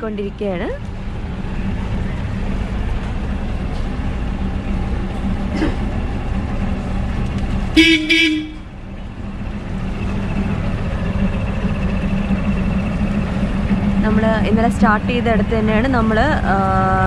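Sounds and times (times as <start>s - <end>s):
boat engine humming: 0.0s - 17.0s
horn blasts: 7.7s - 8.8s.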